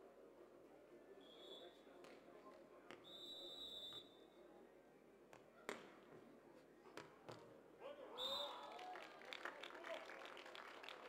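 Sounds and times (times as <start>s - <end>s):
referee's whistle: 3.0s - 4.3s, 8.1s - 8.7s.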